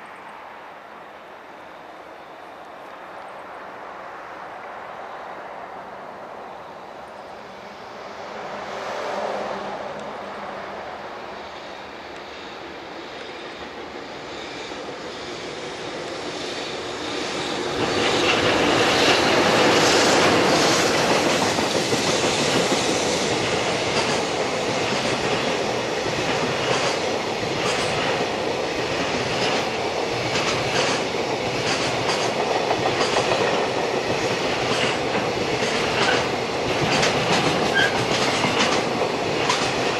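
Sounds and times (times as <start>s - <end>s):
electric locomotive passing: 0.0s - 39.9s
wheels clicking over rail joints: 17.8s - 39.9s.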